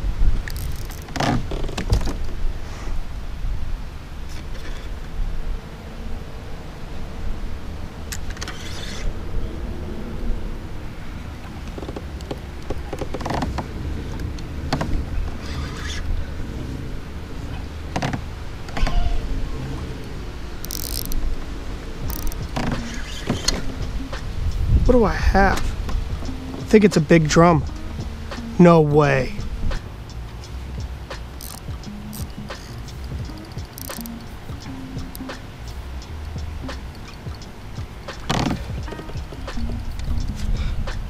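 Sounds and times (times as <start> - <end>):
wind rumbling on microphone: 0.0 - 41.0
fishing reel clicks: 0.4 - 1.1, 20.6 - 21.2, 22.1 - 23.6, 31.4 - 34.3
fishing reel buzz: 0.4 - 1.2, 20.6 - 21.2, 22.1 - 23.6, 31.3 - 34.4.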